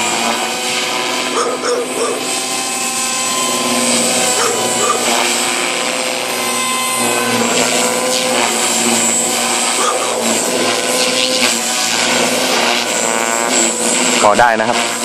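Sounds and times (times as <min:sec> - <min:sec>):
rc helicopter rotor whine: 0:00.0 - 0:15.0.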